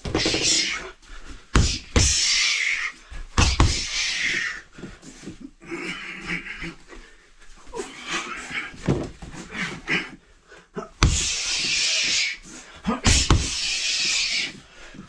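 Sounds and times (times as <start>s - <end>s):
punches hitting wooden dummy: 0.0s - 0.8s, 1.5s - 2.3s, 3.4s - 4.0s, 11.0s - 12.2s, 13.0s - 14.4s.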